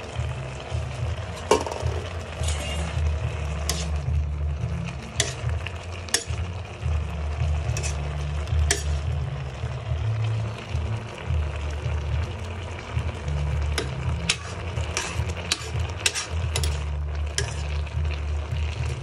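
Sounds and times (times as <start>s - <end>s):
beans sizzling: 0.0s - 19.0s
metal spoon clinking in pan: 5.1s - 6.4s, 8.6s - 9.1s, 13.8s - 17.7s.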